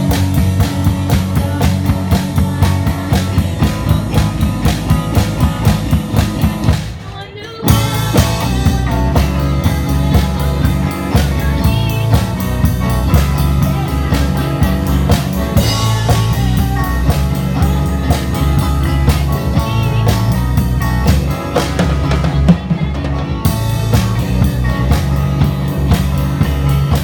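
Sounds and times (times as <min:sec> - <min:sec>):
drum kit beat: 0:00.0 - 0:27.0
live rock band playing: 0:00.0 - 0:27.0.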